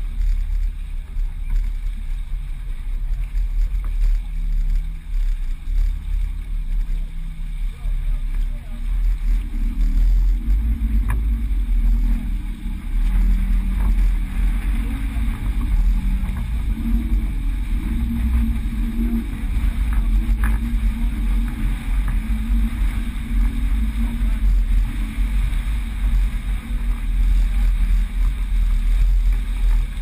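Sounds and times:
faint clicks: 0:00.0 - 0:07.4, 0:08.2 - 0:17.4, 0:18.3 - 0:22.3
water rushing along a hull: 0:00.0 - 0:30.0
wind buffeting the microphone: 0:00.0 - 0:30.0.

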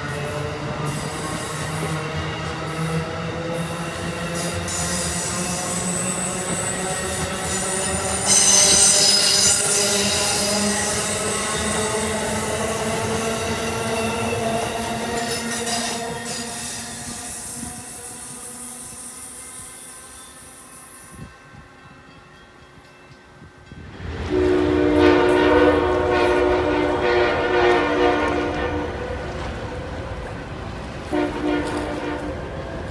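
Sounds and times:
train coaches rumbling: 0:00.0 - 0:32.9
train wheels squealing: 0:00.8 - 0:23.2
train air horn chord: 0:24.3 - 0:29.2, 0:31.1 - 0:32.4.

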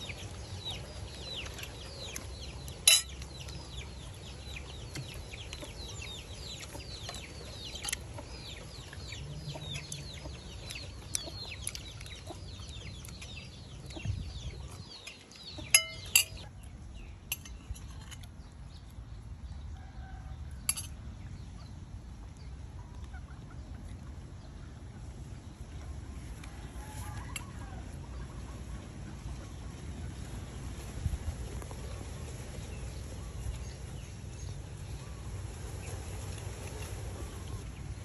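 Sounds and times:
chicks peeping: 0:00.0 - 0:17.2
spoon clinking on ceramic plate: 0:02.9 - 0:03.1, 0:15.7 - 0:16.4, 0:20.7 - 0:21.0.

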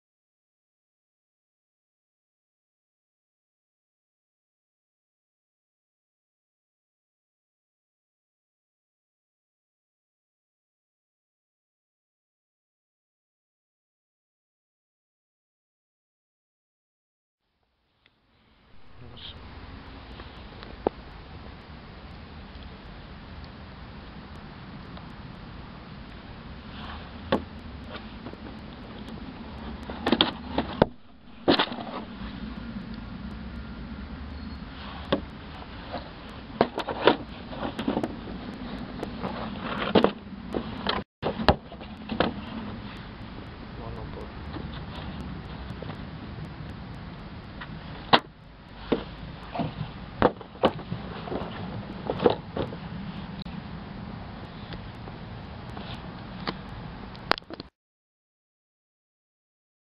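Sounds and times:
low background hum: 0:17.7 - 0:57.4
cardboard knocks and scrapes: 0:29.9 - 0:32.2.

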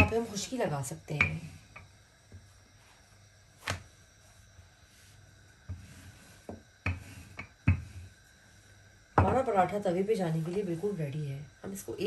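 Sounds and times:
rolling pin working dough: 0:00.0 - 0:11.9
rolling pin knocks on countertop: 0:06.5 - 0:07.9, 0:09.2 - 0:09.4.

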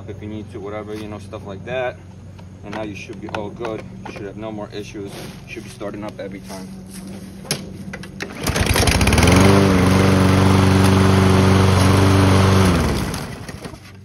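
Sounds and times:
lawn mower engine running: 0:06.6 - 0:14.0.

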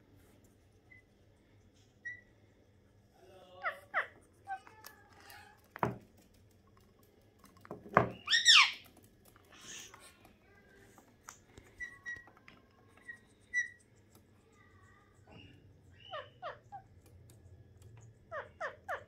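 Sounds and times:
parrots knocking and clicking: 0:04.6 - 0:09.8.

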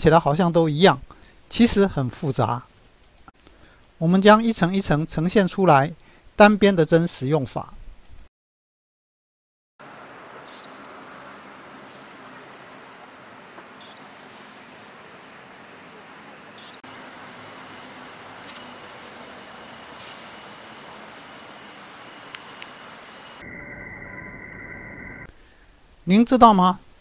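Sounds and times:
low outdoor hiss: 0:00.0 - 0:08.1, 0:09.8 - 0:23.4, 0:25.3 - 0:27.0
night insects chirring: 0:09.8 - 0:25.3.

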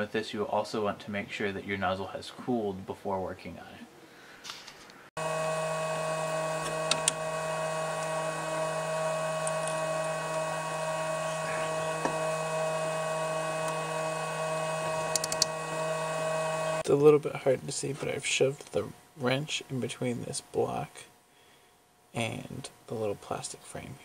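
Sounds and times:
three d printer whining: 0:05.2 - 0:16.8.

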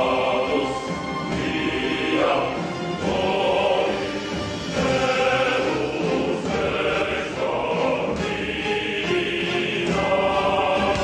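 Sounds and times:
choir singing held chords: 0:00.0 - 0:11.0.

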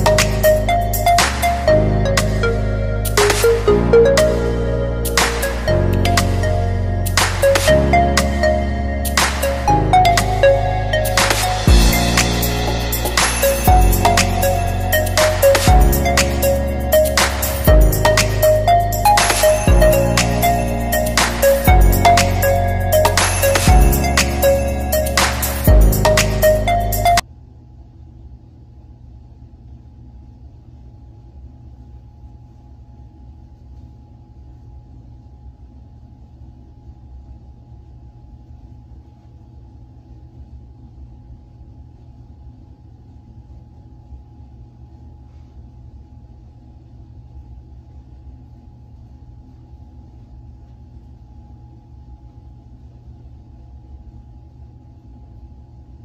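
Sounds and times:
low room hum: 0:00.0 - 0:56.0.

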